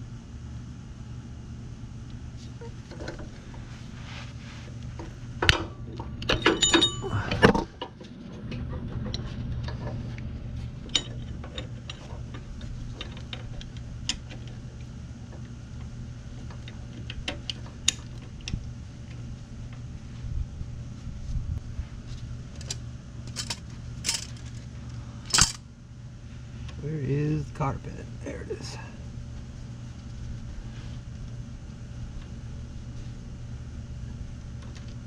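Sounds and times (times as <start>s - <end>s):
steady low hum: 0.0s - 35.0s
metal tools clinking and rattling: 6.2s - 7.5s, 22.6s - 24.6s, 25.3s - 25.6s.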